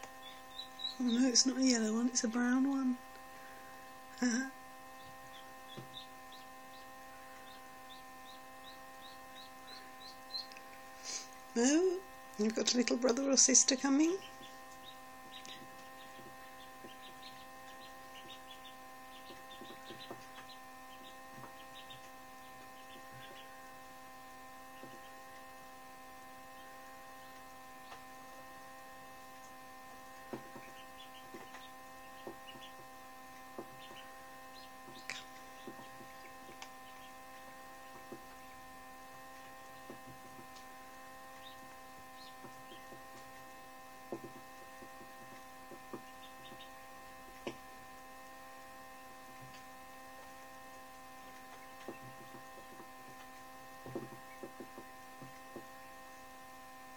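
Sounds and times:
duckling cheeping: 0.0 - 23.7, 30.3 - 32.8, 45.9 - 46.9
incubator humming: 0.0 - 56.9
beak tapping on box: 5.0 - 10.9, 12.4 - 23.7, 24.7 - 25.5, 29.4 - 38.4, 39.3 - 40.7, 41.3 - 47.6, 51.3 - 55.9.

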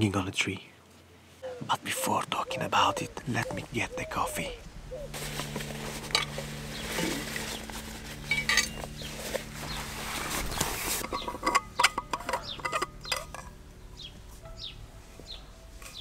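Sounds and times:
rustling in fabric backpack: 5.1 - 11.6
metal flask clicks and clinks: 8.3 - 8.8, 11.0 - 13.5.

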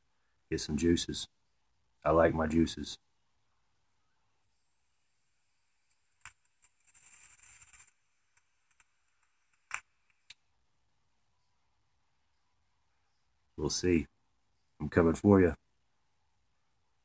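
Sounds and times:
vape crackling hiss: 5.9 - 10.4.

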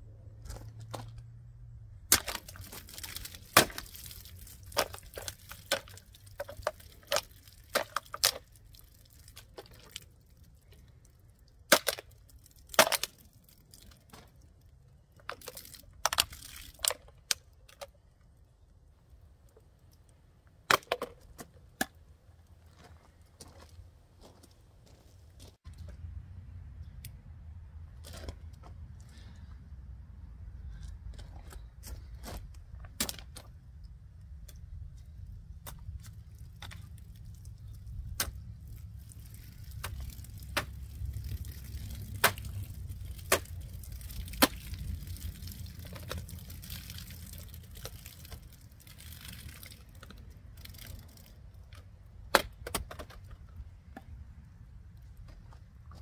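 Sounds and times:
knife cracking plastic bottle: 2.1 - 8.5, 11.7 - 13.2
water spilling: 2.1 - 11.2, 15.3 - 17.0, 36.2 - 51.7.

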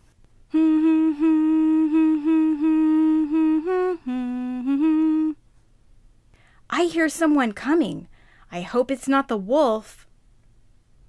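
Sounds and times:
woman humming a tune: 0.5 - 5.4.

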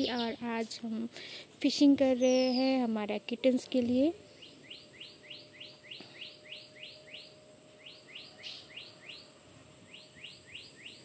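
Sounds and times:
bird chirping rapidly: 0.0 - 0.6, 2.0 - 3.0, 4.3 - 11.0.

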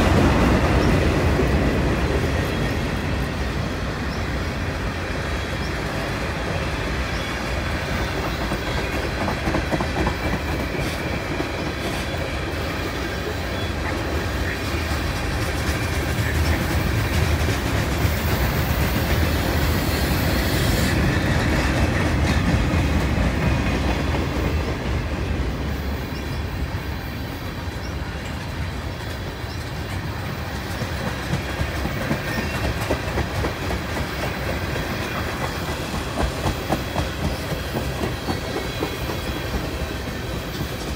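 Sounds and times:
freight train rumbling: 0.0 - 40.9
wheels clacking on rail joints: 5.4 - 26.6, 27.6 - 40.9.

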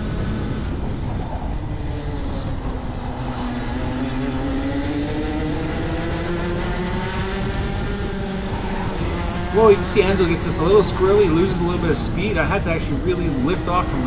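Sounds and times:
kart engine revving: 0.0 - 14.0.

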